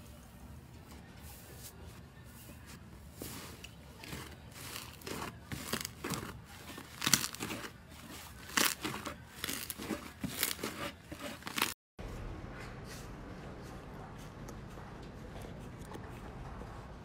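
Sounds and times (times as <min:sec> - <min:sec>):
slime crackling and squelching: 0:03.1 - 0:11.8.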